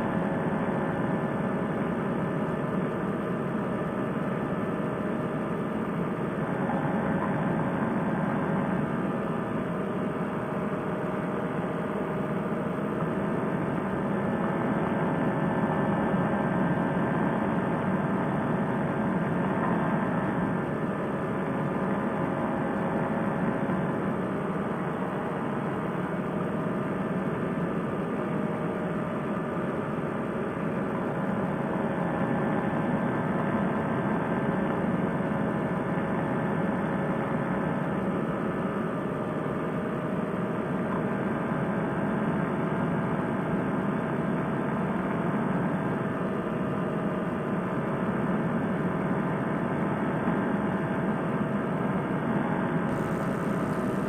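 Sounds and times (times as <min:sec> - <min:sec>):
paramotor engine drone: 0:00.0 - 0:54.0.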